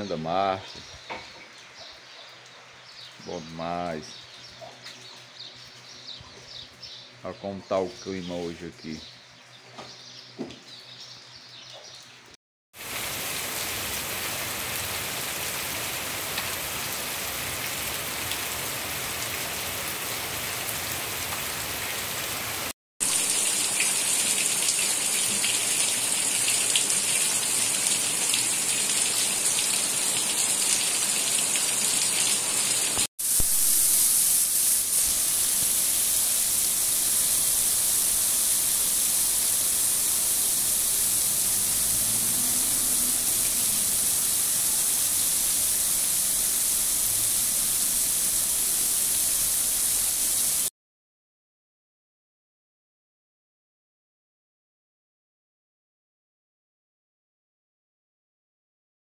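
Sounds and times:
heavy rain pouring: 12.8 - 50.7.

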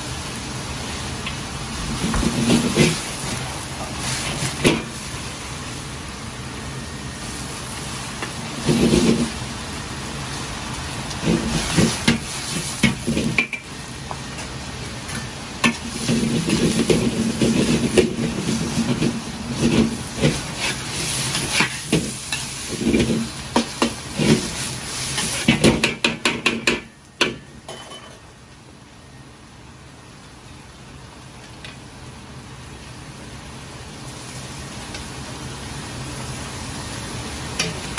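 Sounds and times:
food sizzling in a wok: 0.0 - 37.9
gas burner roar: 0.0 - 37.9
utensils clacking against a wok: 25.2 - 28.2.

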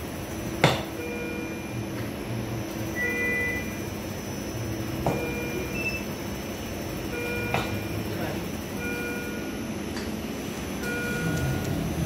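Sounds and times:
steady machine hum: 0.0 - 12.0
short electronic beeps: 3.0 - 3.8, 5.1 - 6.1, 8.8 - 9.5.

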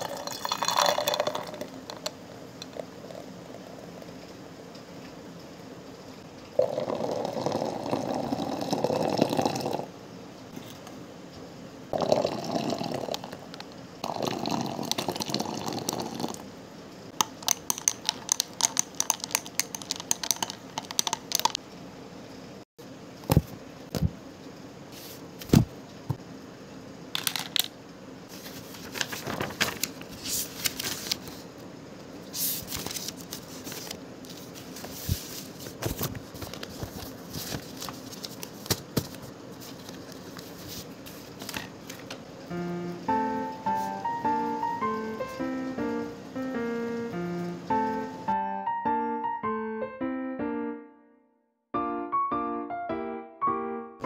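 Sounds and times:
milk pouring into glass: 0.0 - 1.8
paper rustling and sliding: 28.3 - 31.5, 32.3 - 42.2.

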